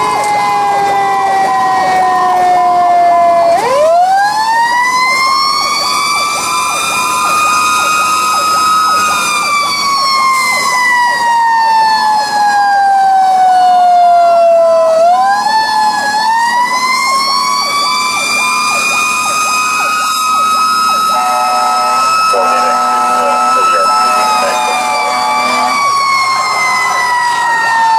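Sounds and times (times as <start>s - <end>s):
mechanical siren wailing: 0.0s - 27.9s.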